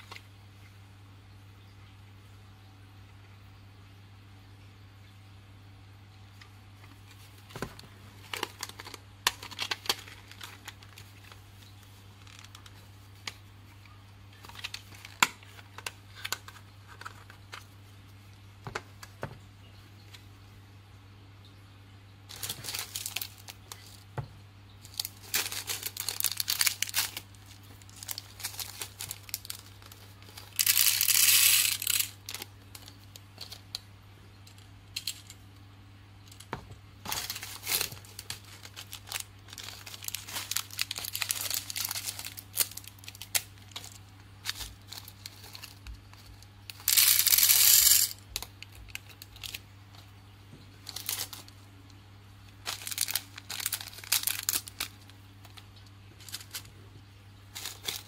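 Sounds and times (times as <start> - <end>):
low steady hum: 0.0 - 58.0
plastic bags crinkling and tearing: 7.2 - 13.4, 14.3 - 17.7, 22.3 - 33.9, 36.2 - 49.6, 50.8 - 51.6, 52.5 - 58.0
candy beads rattling into plastic: 22.3 - 24.0, 24.9 - 33.6, 37.1 - 49.6, 50.8 - 51.5, 52.6 - 55.6.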